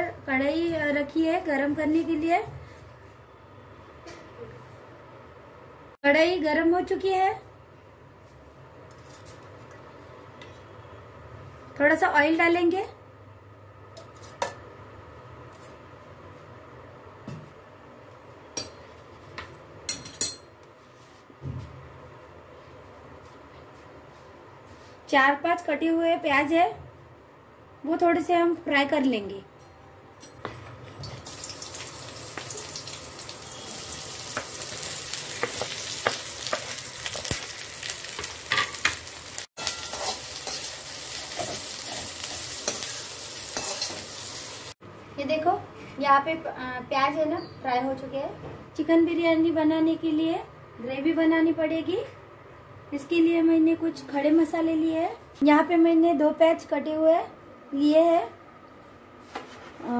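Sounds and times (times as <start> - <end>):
onions sizzling in hot oil: 31.0 - 44.8
metal spoon clinking on pan: 39.6 - 40.7, 42.6 - 44.1.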